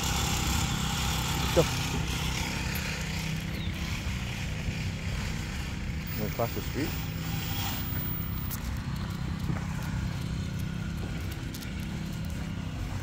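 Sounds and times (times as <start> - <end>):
footsteps on asphalt: 0.0 - 13.0
steady low rumble: 7.0 - 13.0.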